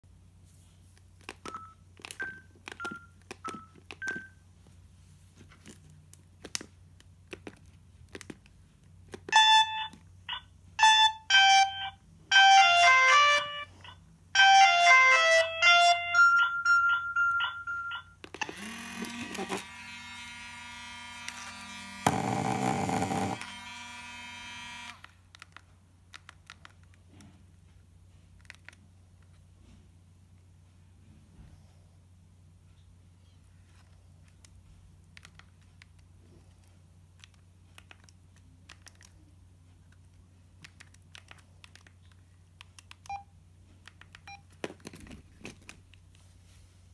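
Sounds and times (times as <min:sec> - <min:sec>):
electronic phone melodies: 0:01.4 - 0:04.4, 0:09.3 - 0:24.9
mobile phone key beeps: 0:01.4 - 0:04.4, 0:09.3 - 0:15.3, 0:16.2 - 0:19.6, 0:43.0 - 0:43.3, 0:44.2 - 0:44.5
held beep: 0:09.3 - 0:18.2
loud buzz: 0:18.5 - 0:25.0.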